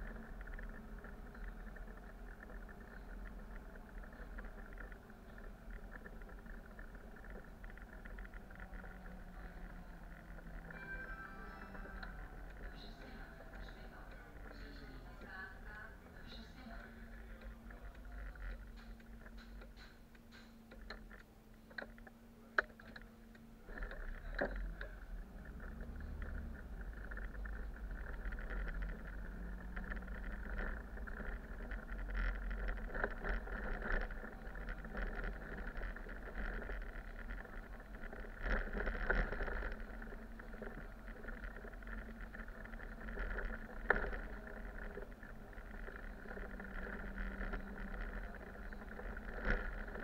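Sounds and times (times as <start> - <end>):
road and rattle noise: 0.0 - 50.0
bus engine accelerating: 7.2 - 17.3
light clicks and taps: 11.7 - 50.0.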